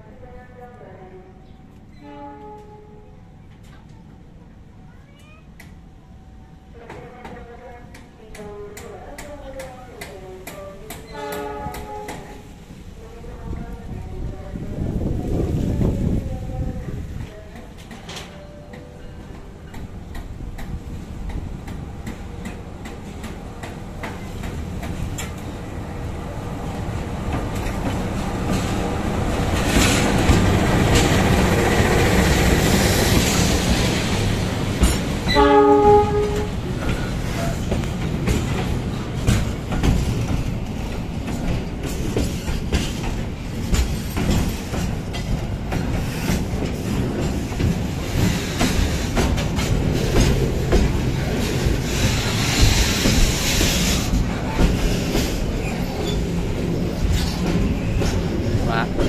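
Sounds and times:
train horn blast: 2.0 - 3.1, 11.1 - 12.4, 35.2 - 36.6
diesel locomotive rumble: 20.1 - 59.0
wheels clacking over rail joints: 27.2 - 59.0.

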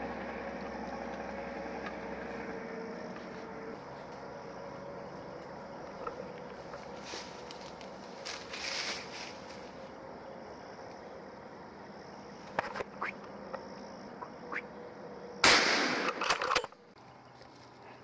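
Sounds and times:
insects droning: 0.0 - 18.0
gunshot: 15.4 - 16.4.

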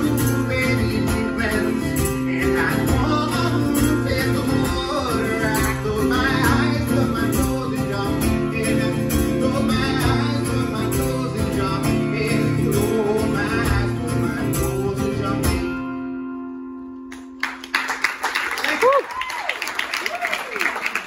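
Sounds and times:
acoustic guitar strumming: 0.0 - 17.4.

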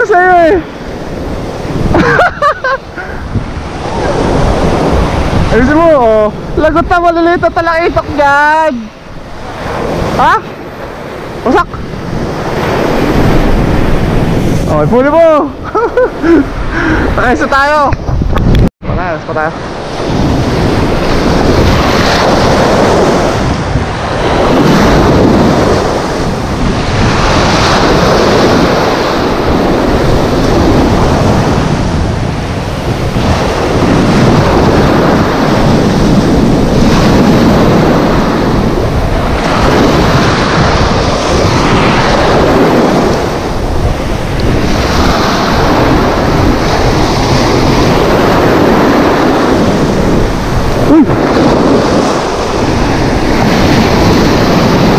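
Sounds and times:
sea surf breaking: 0.0 - 54.9.

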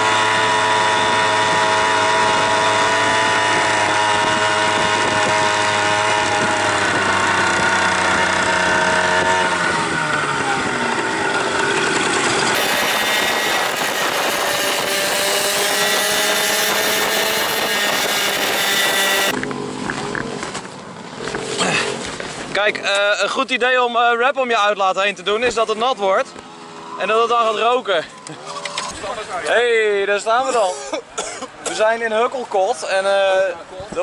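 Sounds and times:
moped engine buzzing: 0.0 - 22.4.

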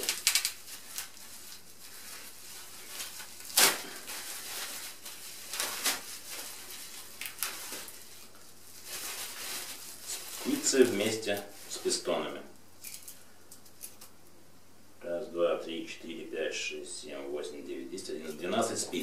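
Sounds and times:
sharp plastic crackle: 0.0 - 11.9
plastic bags rustling: 0.0 - 14.1.

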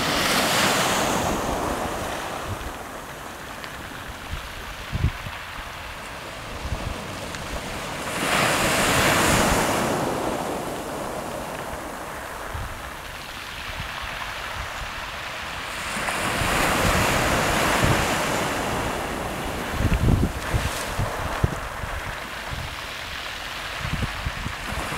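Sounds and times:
waves washing over shingle beach: 0.0 - 24.9
wind buffeting microphone: 0.0 - 24.9.

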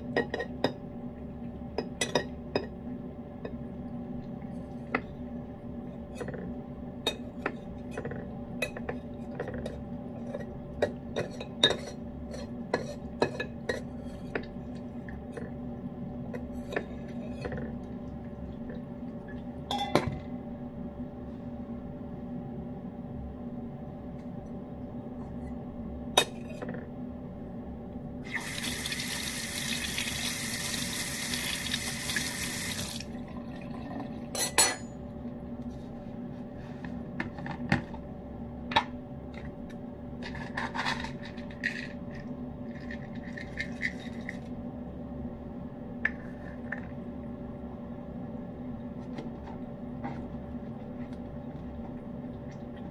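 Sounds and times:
water tap running: 28.2 - 33.2.

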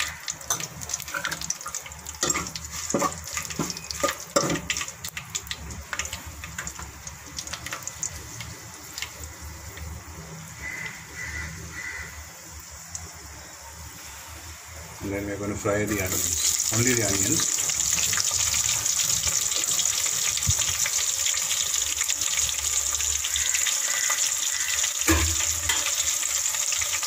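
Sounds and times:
leaves and seeds sizzling in oil: 0.0 - 27.0
sharp popping in oil: 24.9 - 26.2.

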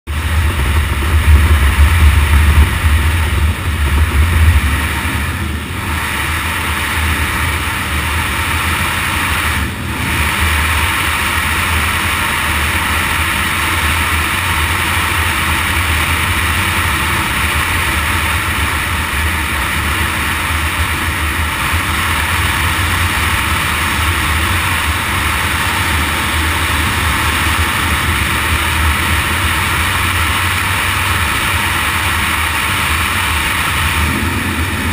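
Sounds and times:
motorcycle engine running: 0.0 - 34.9
wind noise: 0.1 - 34.9.

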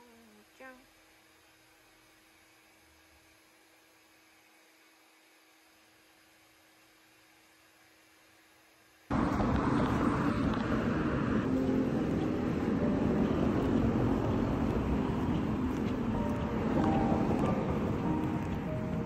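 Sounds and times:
street traffic noise: 9.1 - 19.0.

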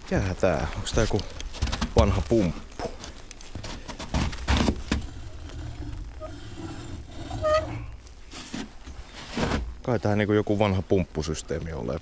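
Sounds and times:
rusty pump squeak: 5.2 - 8.0.

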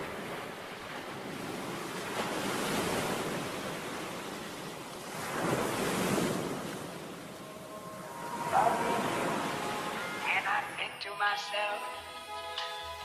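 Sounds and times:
surf breaking against rocks: 0.0 - 7.4.

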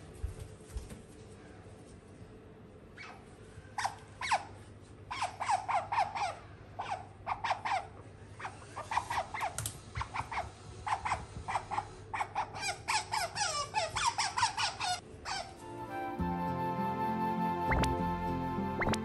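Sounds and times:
otter chirping high squeaks: 3.8 - 15.6, 18.8 - 19.0.

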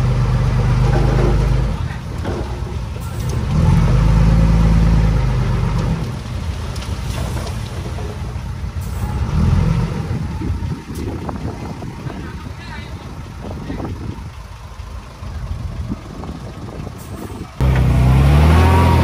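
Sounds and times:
heavy diesel engine running: 7.1 - 19.0.

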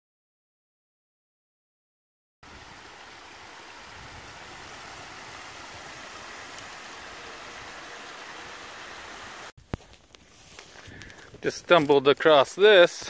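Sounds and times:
creek water flowing: 2.4 - 9.6.

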